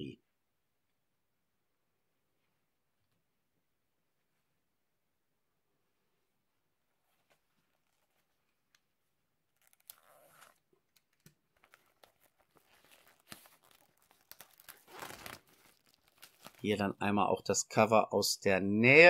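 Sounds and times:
plastic wrap crinkling and tearing: 9.5 - 16.8.

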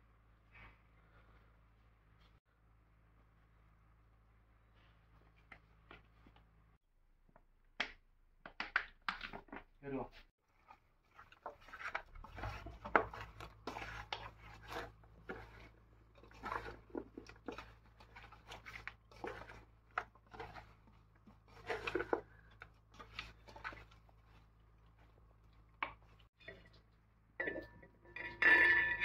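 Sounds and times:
hands squelching raw meat: 10.5 - 26.4.

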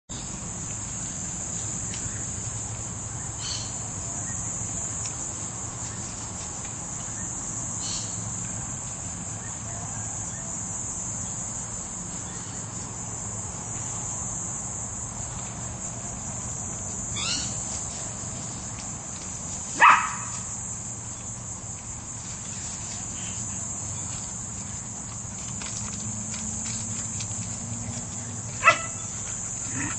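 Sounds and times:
high-pitched insect drone: 15.8 - 17.9
dog bark: 19.8 - 20.4, 28.6 - 29.1.

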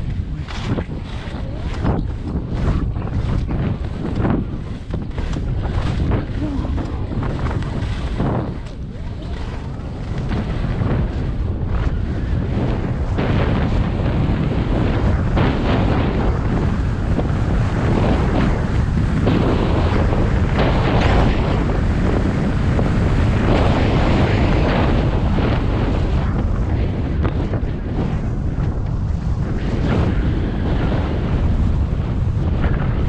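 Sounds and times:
skis scraping over snow: 0.0 - 33.0
wind buffeting microphone: 0.0 - 33.0.

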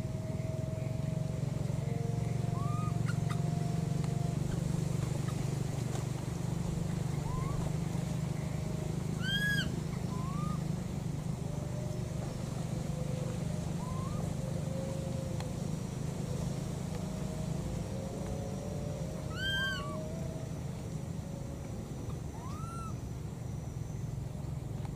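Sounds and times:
low engine-like hum: 0.0 - 24.9
short upward calls: 2.5 - 3.5, 7.2 - 7.7, 9.2 - 10.6, 19.3 - 20.0
baby monkey cooing: 2.6 - 3.5, 7.2 - 7.7, 9.2 - 10.6, 19.3 - 20.0, 22.3 - 22.9.

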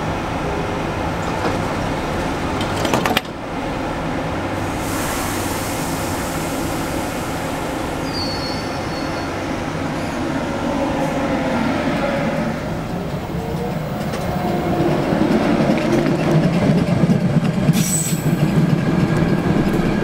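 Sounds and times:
train equipment humming: 0.0 - 20.0
train doors closing: 0.3 - 3.6, 4.6 - 20.0
train pulling away: 3.4 - 20.0
hiss of air: 4.6 - 8.6.

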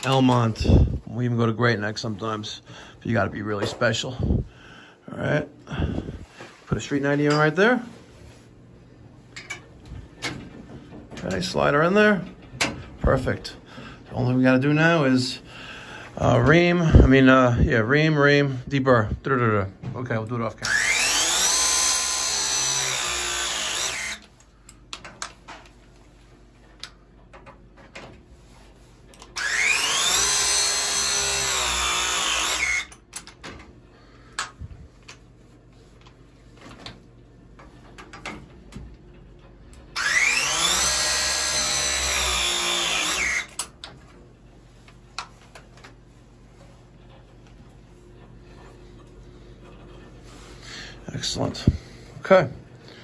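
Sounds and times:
pipe press tool motor whine: 20.6 - 24.4, 29.1 - 33.1, 40.0 - 43.7.

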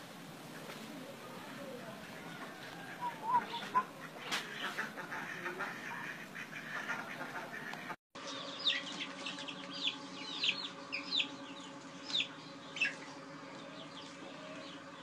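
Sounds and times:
steady low hum: 0.0 - 15.0
ducks calling: 1.4 - 15.0
chicks peeping: 2.0 - 15.0.

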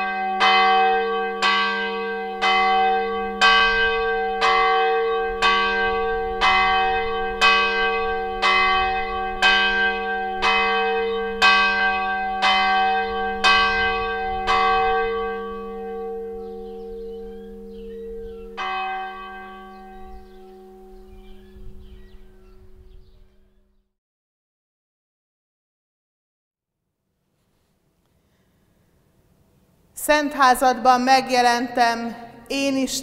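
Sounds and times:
church bell tolling: 0.0 - 23.6.

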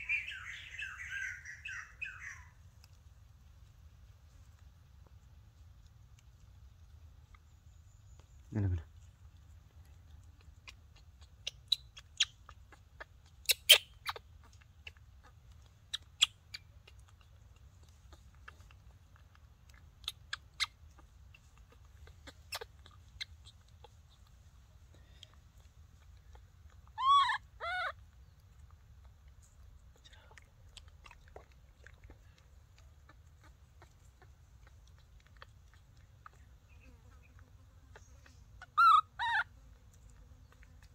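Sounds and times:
wavering animal calls: 0.0 - 2.6, 26.2 - 28.0, 35.3 - 39.6
monkey mouth smacking and clicking: 2.6 - 40.9.

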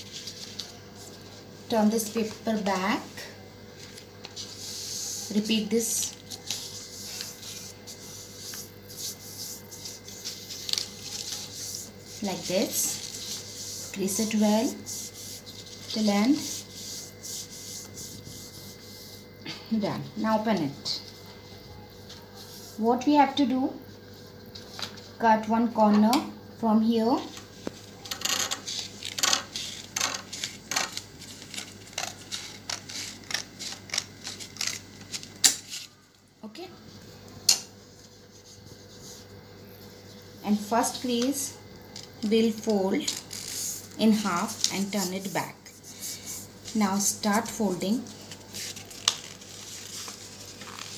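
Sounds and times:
faint steady hum: 0.0 - 50.9
gift paper rustling: 5.9 - 14.4, 47.9 - 50.9.

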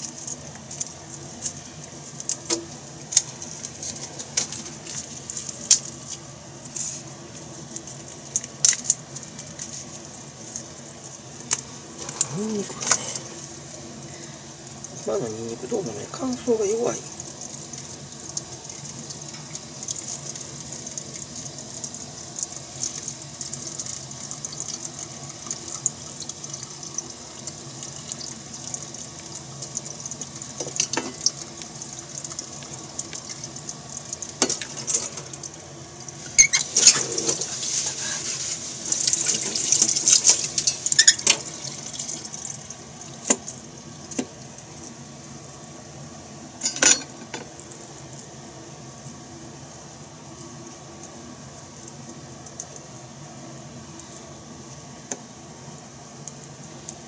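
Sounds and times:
garlic skins rustling and crackling: 0.0 - 18.4, 36.1 - 45.0
steady hiss: 0.0 - 57.0.

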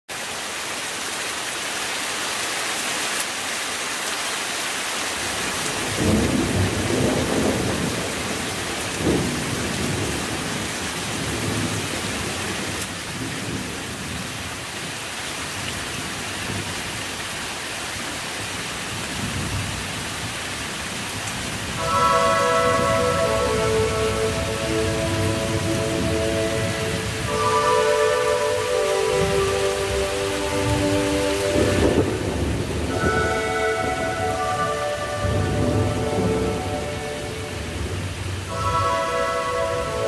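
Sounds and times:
rain and ice pellets falling: 0.1 - 40.0
thunder rumbling: 5.6 - 12.0, 21.4 - 40.0.

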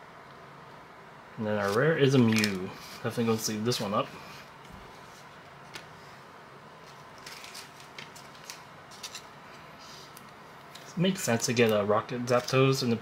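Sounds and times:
card sliding into plastic sleeve: 1.6 - 2.6.

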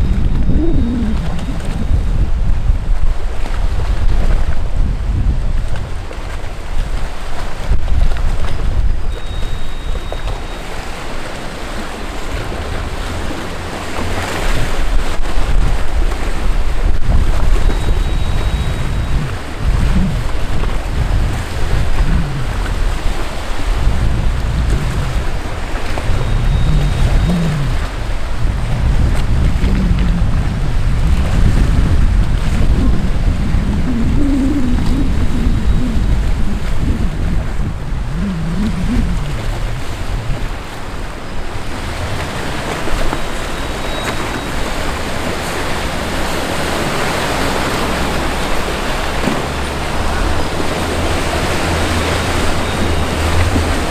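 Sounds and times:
low rumble: 0.0 - 4.0, 16.9 - 42.2
choppy water rushing: 0.0 - 53.9
wind buffeting microphone: 0.0 - 53.9.

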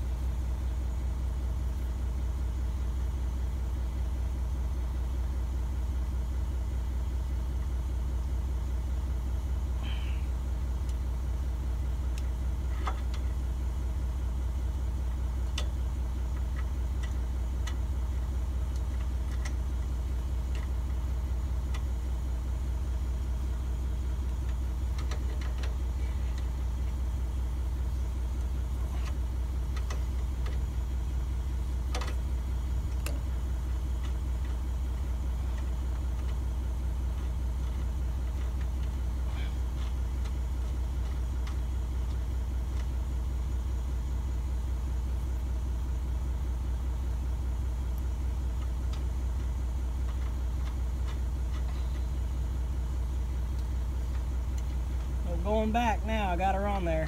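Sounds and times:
engine idling: 0.0 - 57.0.

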